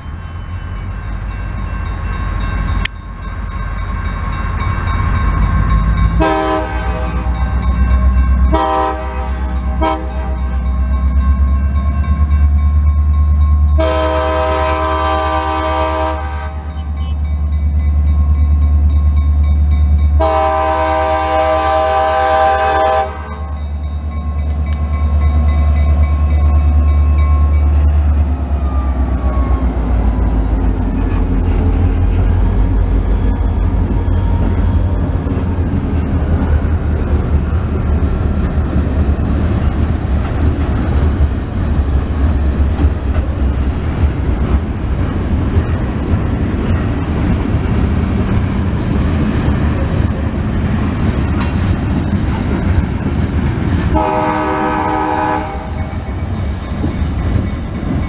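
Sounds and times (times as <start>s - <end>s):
crossing bells ringing: 0.0s - 37.9s, 54.0s - 58.0s
locomotive horn blasts: 6.2s - 7.5s, 8.5s - 10.6s, 13.8s - 17.3s, 20.2s - 23.5s, 53.9s - 55.8s
train wheels clattering over rail joints: 33.7s - 54.0s.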